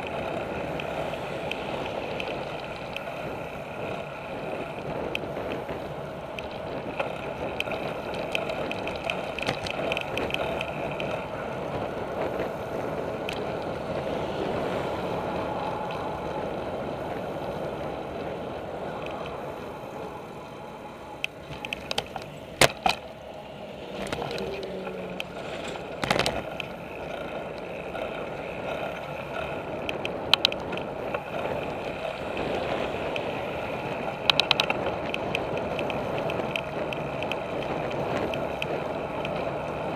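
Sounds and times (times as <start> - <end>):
bicycle tyres rolling on pavement: 0.0 - 39.9
wind noise: 0.0 - 39.9
sharp clicks and knocks: 21.2 - 23.1.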